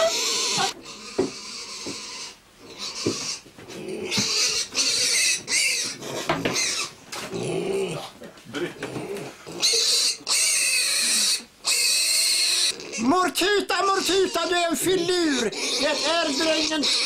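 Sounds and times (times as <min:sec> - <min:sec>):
piglet squealing: 0:00.0 - 0:08.1, 0:09.2 - 0:17.0.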